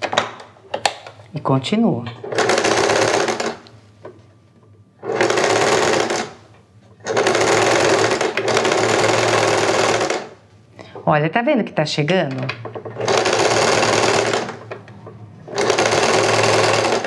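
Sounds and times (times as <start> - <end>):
sewing machine stitching: 2.2 - 3.6, 5.0 - 6.4, 7.0 - 10.4, 12.8 - 14.7, 15.5 - 17.0.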